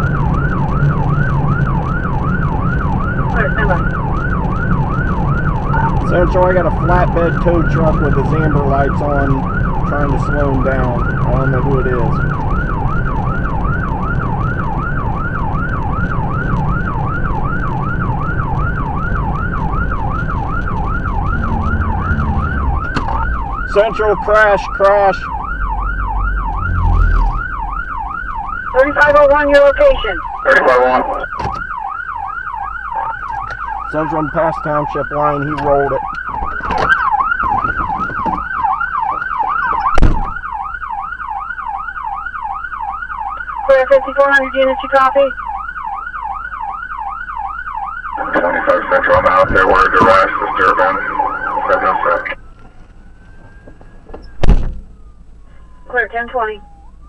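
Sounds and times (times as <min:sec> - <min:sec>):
car driving at speed: 0:00.0 - 0:43.7, 0:45.0 - 0:57.0
police siren yelping: 0:00.0 - 0:57.0
sharp thump: 0:39.9 - 0:40.4, 0:54.1 - 0:54.9.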